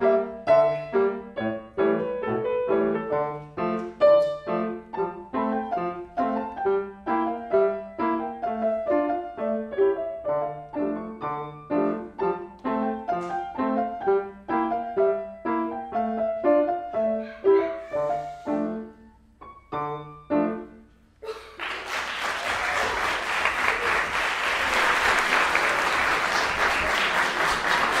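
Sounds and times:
grand piano chords: 0:00.0 - 0:21.2
audience applause: 0:21.5 - 0:28.0.

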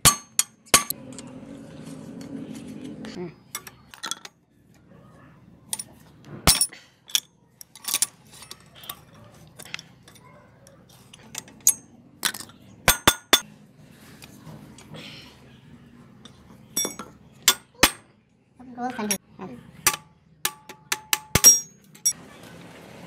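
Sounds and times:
wrench clinking on metal: 0:06.5 - 0:13.4, 0:16.8 - 0:18.0, 0:19.9 - 0:22.2.

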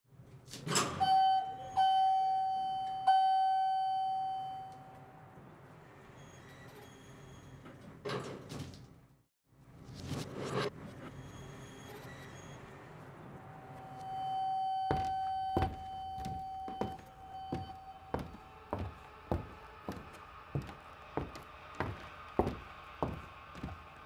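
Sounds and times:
elevator arrival chime: 0:01.0 - 0:05.3, 0:13.6 - 0:19.5.

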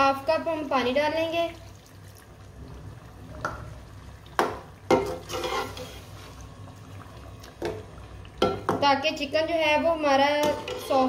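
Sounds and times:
low steady hum: 0:00.0 - 0:11.0
metal spatula scraping pan: 0:05.0 - 0:06.1, 0:10.4 - 0:11.0.

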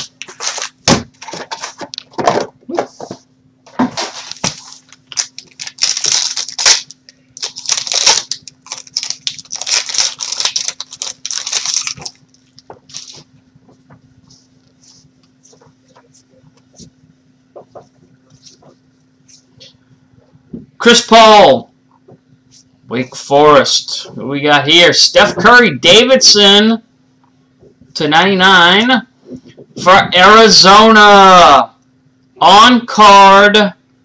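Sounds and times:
plastic wrapper crinkling and tearing: 0:04.0 - 0:13.3.

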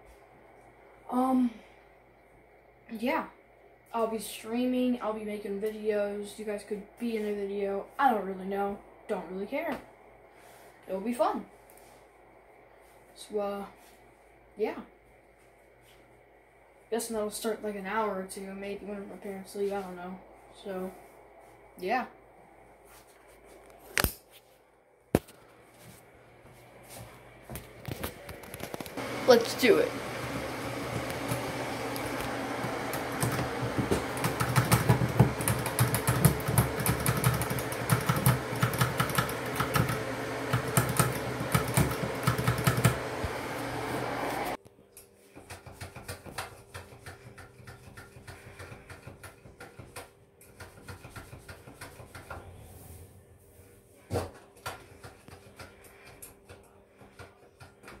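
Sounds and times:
machine-like hum: 0:25.1 - 0:44.6.

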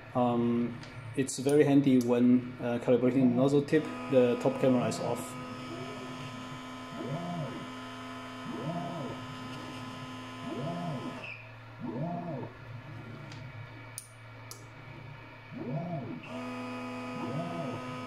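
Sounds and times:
electrical hum: 0:00.0 - 0:18.0
stepper motors whining: 0:03.3 - 0:13.6, 0:14.9 - 0:18.0.

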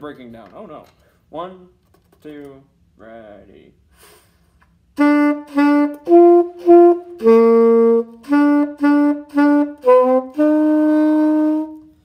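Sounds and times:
alto saxophone melody: 0:04.9 - 0:12.0.

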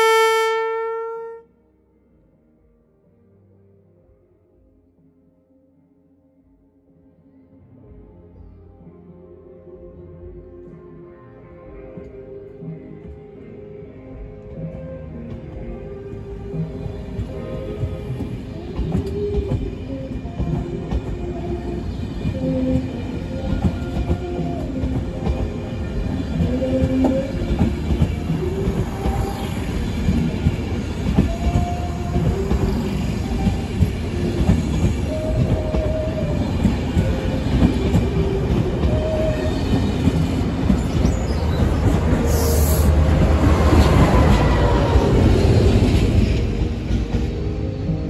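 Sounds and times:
diesel locomotive engine rumble: 0:14.2 - 0:48.0
train carriages rumbling: 0:14.6 - 0:48.0
wheels squealing on track: 0:40.7 - 0:43.0.

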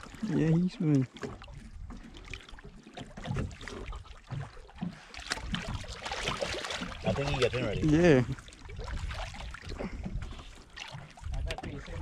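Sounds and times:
water slapping against boat: 0:00.0 - 0:12.0.

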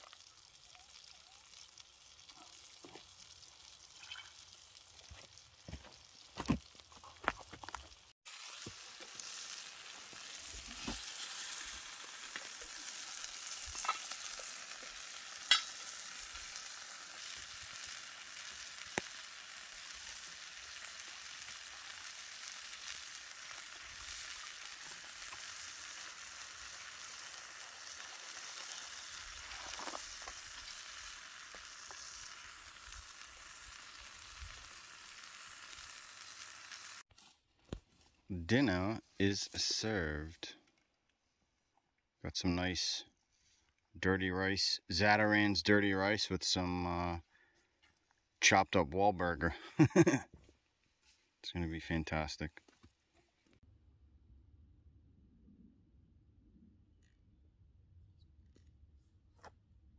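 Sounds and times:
food sizzling in a pan: 0:00.0 - 0:06.3, 0:07.7 - 0:37.1, 0:49.9 - 0:50.2.

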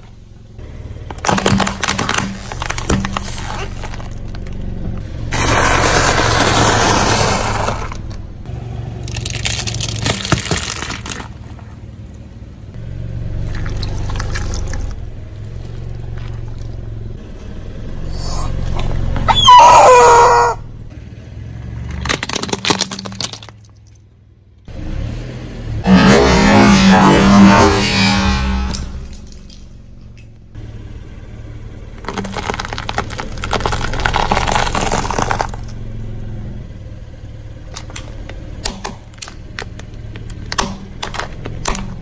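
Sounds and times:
sharp plastic cracks: 0:01.0 - 0:04.6, 0:09.1 - 0:11.4, 0:21.9 - 0:24.0, 0:32.0 - 0:35.8, 0:37.7 - 0:42.0
tyre crushing objects: 0:01.0 - 0:08.2, 0:09.1 - 0:11.8, 0:21.8 - 0:23.9, 0:32.0 - 0:35.7
loud short squeal: 0:18.1 - 0:20.6, 0:25.9 - 0:29.1.

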